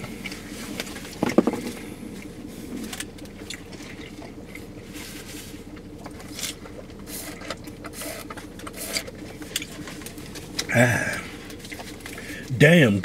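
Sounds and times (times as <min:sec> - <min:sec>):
steady low hum: 0:00.0 - 0:13.0
small rustles: 0:00.3 - 0:08.5
chewing: 0:05.8 - 0:12.5.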